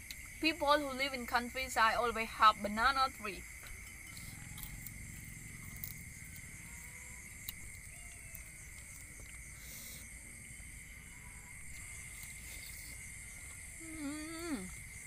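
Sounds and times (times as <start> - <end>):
night insects droning: 0.0 - 15.0
crunchy food being chewed: 3.6 - 14.0.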